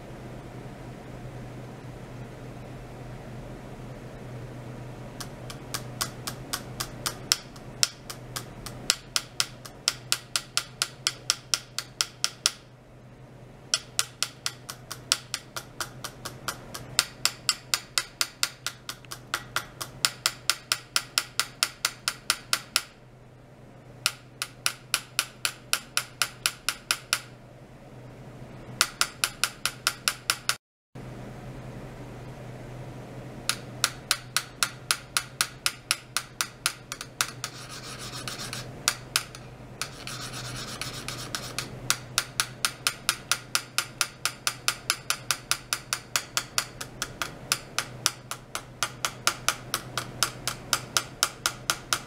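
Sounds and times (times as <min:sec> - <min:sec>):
steady low hum: 0:00.0 - 0:52.0
rapid metallic clicking: 0:05.2 - 0:12.6, 0:13.7 - 0:23.0, 0:33.5 - 0:52.0.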